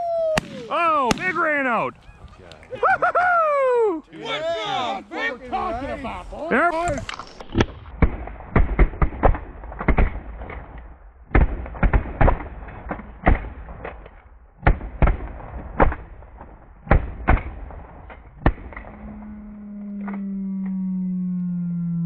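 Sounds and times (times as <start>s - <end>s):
shotgun shots: 0.4s - 1.6s, 7.5s - 14.0s, 14.6s - 19.0s.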